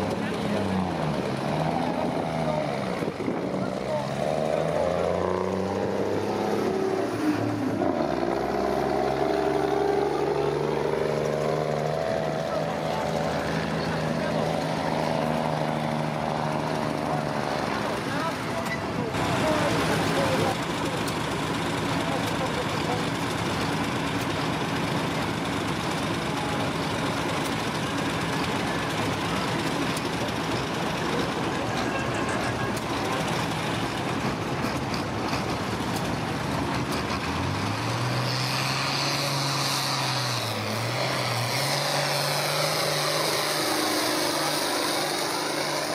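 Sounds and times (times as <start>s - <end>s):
diesel engine running hard: 0.0s - 45.9s.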